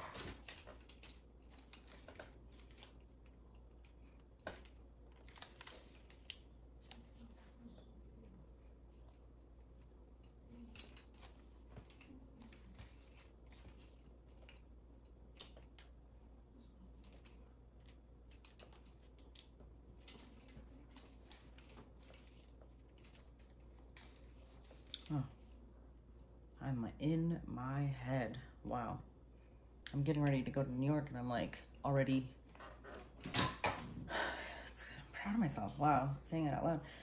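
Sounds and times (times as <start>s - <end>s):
curling iron clicks and rustles: 0.0s - 16.1s, 16.8s - 25.6s
low steady hum: 0.0s - 37.0s.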